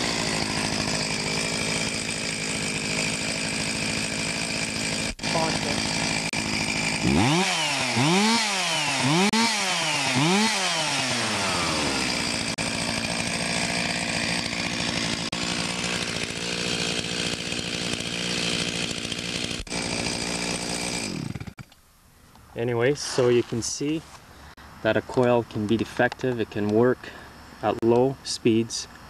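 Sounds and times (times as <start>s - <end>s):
chainsaw revving and idling: 0.0s - 21.7s.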